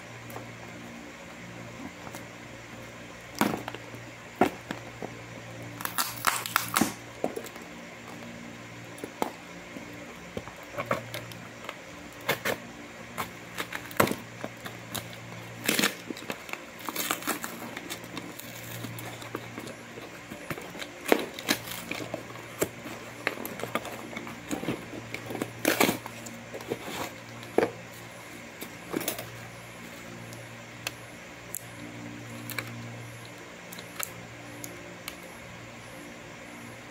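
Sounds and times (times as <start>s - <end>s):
electric fan hum: 0.0s - 36.9s
scissors cutting cardboard: 10.6s - 29.4s.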